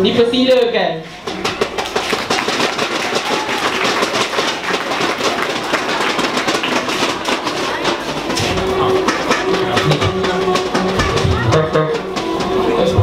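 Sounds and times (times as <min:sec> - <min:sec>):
audience clapping: 0:01.3 - 0:08.5.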